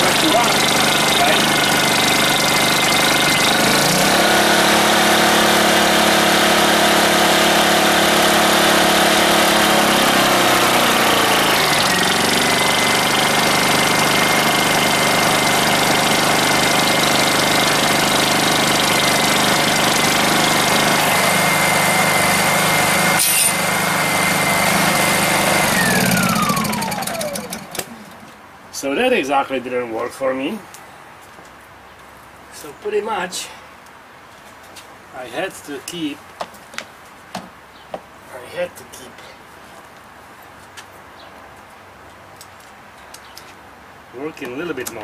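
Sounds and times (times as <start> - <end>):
generator engine hum: 0.0 - 28.7.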